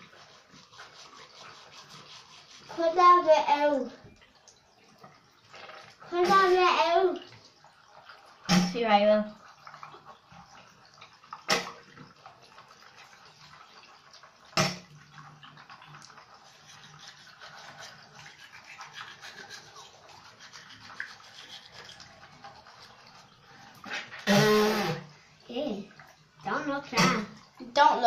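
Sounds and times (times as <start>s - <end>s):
toothbrush scrubbing teeth: 0.0s - 8.4s, 15.2s - 28.0s.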